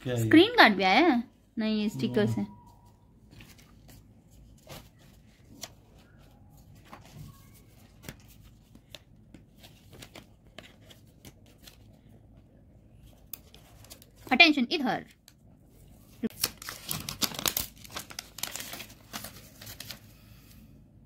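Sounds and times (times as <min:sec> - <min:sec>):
paper rustling and clicks: 0:16.3 - 0:20.0.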